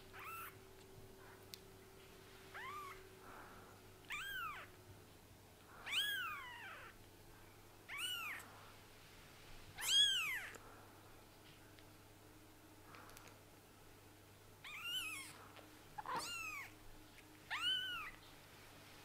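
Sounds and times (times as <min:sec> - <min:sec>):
kitten mewing: 0:00.2 - 0:00.6, 0:04.1 - 0:04.7, 0:05.8 - 0:07.0, 0:07.9 - 0:08.4, 0:14.6 - 0:15.4, 0:16.0 - 0:16.8.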